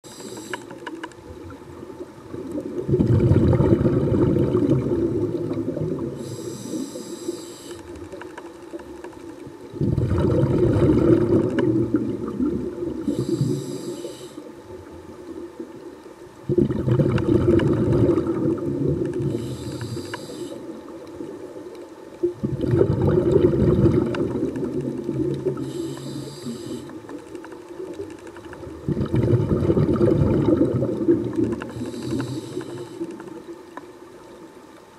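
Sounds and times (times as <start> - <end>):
regulator inhale hiss: 0.0 - 1.0, 6.0 - 8.2, 13.0 - 14.6, 19.2 - 20.9, 25.4 - 27.3, 31.6 - 33.5
exhaled bubbles rushing: 1.2 - 6.3, 9.7 - 13.6, 16.4 - 19.4, 22.2 - 25.9, 28.0 - 33.5.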